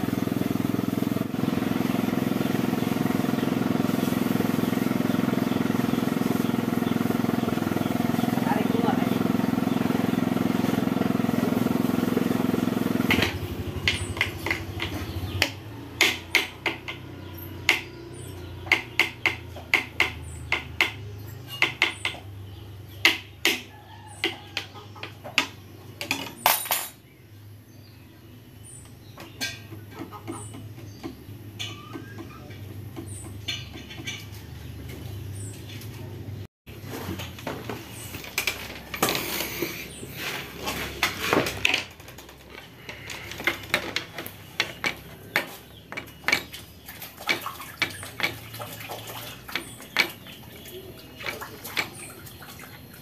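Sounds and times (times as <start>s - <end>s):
loud engine-like drone: 0.0s - 15.0s.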